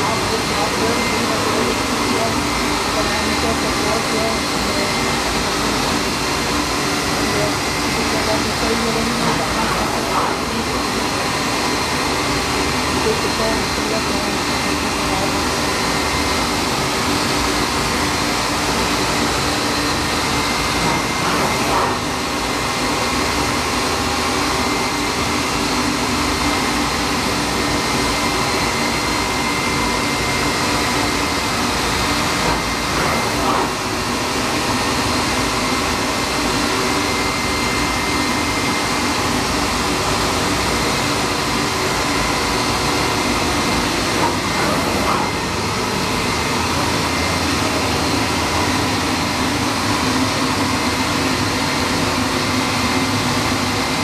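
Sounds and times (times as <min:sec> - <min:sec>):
machine whirring: 0:00.0 - 0:54.0.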